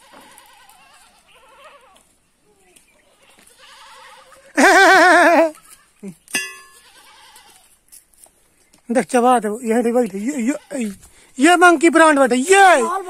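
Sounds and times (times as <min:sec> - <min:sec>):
goats bleating: 0:00.0 - 0:02.1, 0:03.1 - 0:06.0, 0:06.7 - 0:07.8, 0:10.2 - 0:11.1.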